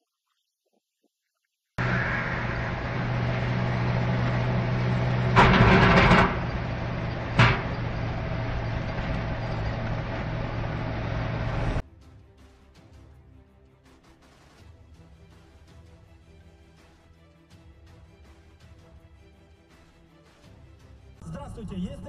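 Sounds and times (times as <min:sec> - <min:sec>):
car engine and road noise: 0:01.8 - 0:11.8
sharp bang: 0:07.3 - 0:08.0.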